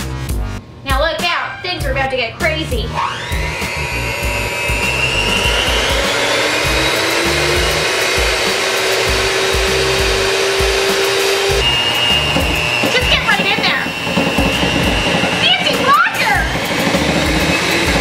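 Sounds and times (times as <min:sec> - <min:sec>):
music with heavy low beat: 0:00.0 - 0:00.6
electric hand mixer whining: 0:02.8 - 0:18.0.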